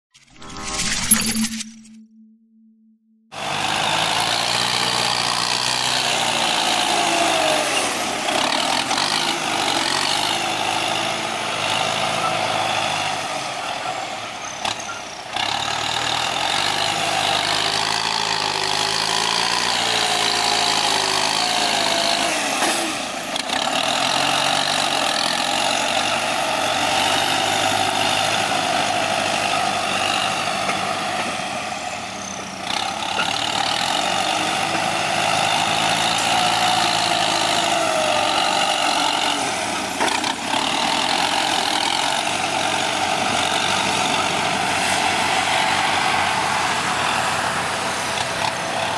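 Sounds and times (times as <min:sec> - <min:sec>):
tractor diesel engine under load: 0:03.3 - 0:48.9.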